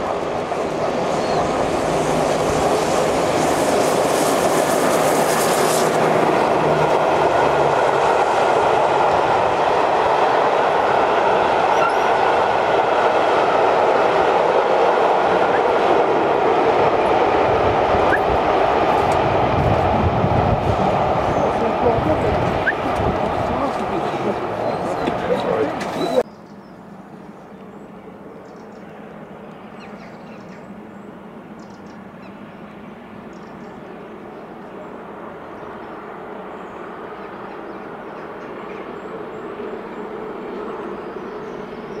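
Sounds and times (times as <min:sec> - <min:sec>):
steam locomotive hissing: 0:00.0 - 0:09.7
train wheels rumbling on rails: 0:00.0 - 0:26.3.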